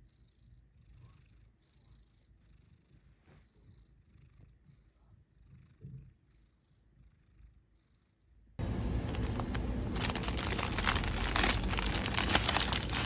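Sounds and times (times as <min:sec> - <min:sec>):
cat purring: 0:00.0 - 0:08.6.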